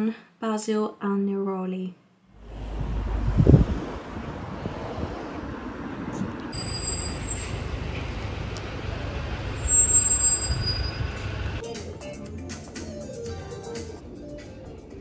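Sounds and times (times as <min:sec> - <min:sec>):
passing vehicles rumbling: 0:02.3 - 0:11.6.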